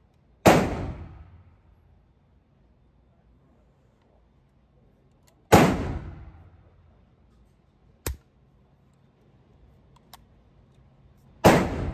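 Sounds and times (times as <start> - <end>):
rifle shot echoing: 0.4 - 1.4, 5.5 - 6.4, 11.4 - 11.9.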